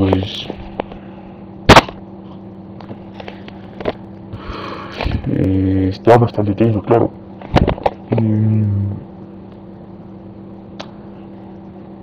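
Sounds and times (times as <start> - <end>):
steady low hum: 0.0 - 12.0
man's hesitation sound: 8.1 - 9.1.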